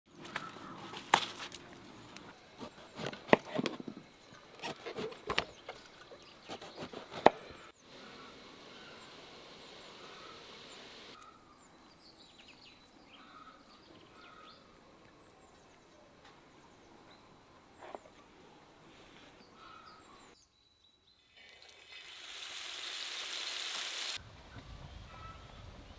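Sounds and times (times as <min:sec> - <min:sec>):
birds chirping: 0:00.1 - 0:21.4
steady hiss: 0:07.8 - 0:11.2.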